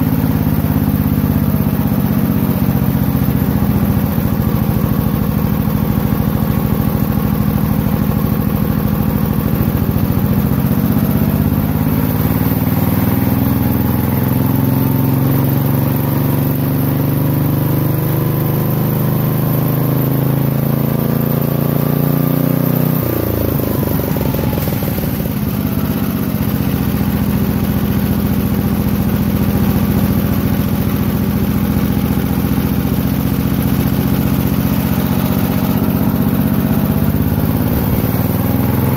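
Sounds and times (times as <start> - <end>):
small engine revving: 17.6 - 38.9.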